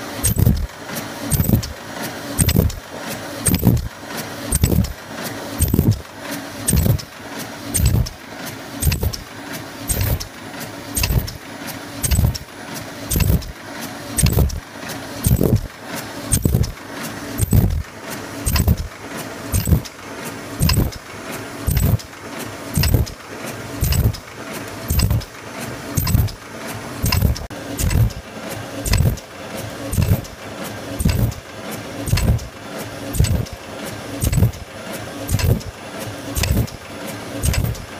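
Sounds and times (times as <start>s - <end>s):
steady machine hum: 0.0s - 37.9s
machine thumps with sharp clicks: 0.2s - 0.7s, 1.3s - 1.8s, 2.4s - 2.8s, 3.4s - 5.0s, 5.6s - 9.3s, 9.9s - 10.4s, 11.0s - 11.4s, 12.0s - 13.6s, 14.2s - 16.8s, 17.4s - 18.9s, 19.5s - 20.0s, 20.6s - 21.1s, 21.7s - 22.2s, 22.8s - 23.2s, 23.8s - 29.3s, 29.9s - 30.4s, 31.0s - 33.6s, 34.2s - 36.8s, 37.4s - 37.9s.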